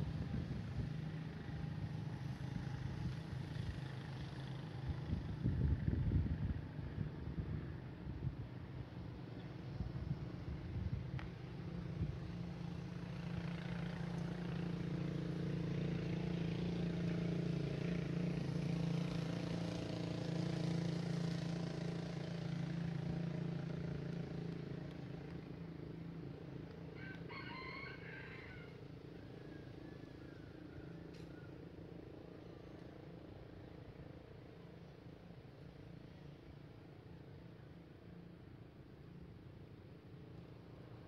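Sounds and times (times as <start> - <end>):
vehicle engine droning: 0.0 - 41.0
rooster crowing: 26.9 - 31.6.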